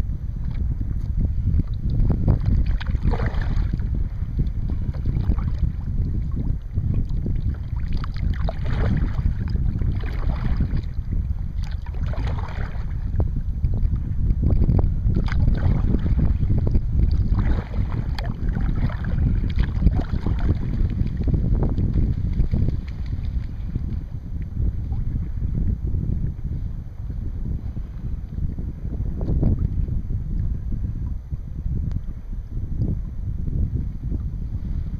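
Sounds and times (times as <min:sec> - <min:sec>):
wind rumbling on microphone: 0:00.0 - 0:34.9
kayak paddle splashing: 0:01.6 - 0:13.1, 0:15.1 - 0:24.1.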